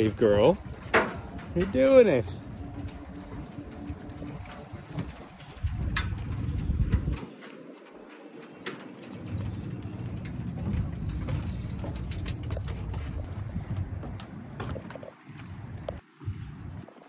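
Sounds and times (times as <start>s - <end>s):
low rumble: 0.0s - 7.2s, 9.2s - 16.8s
footsteps on metal grate: 0.0s - 17.0s.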